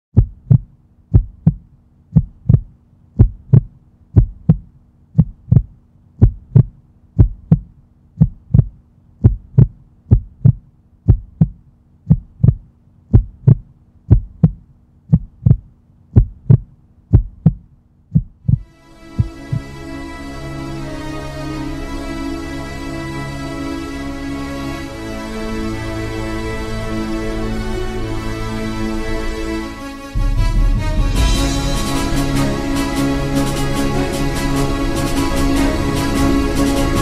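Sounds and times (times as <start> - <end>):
heartbeat double thump: 0.1 - 19.6
music: 18.5 - 37.0.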